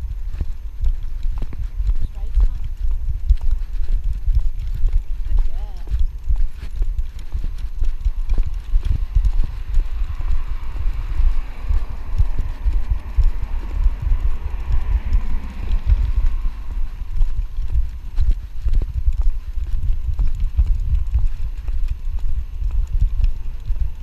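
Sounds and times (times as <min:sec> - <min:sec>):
footsteps thumping: 0:00.0 - 0:24.0
car passing with tyre hiss: 0:09.0 - 0:17.1.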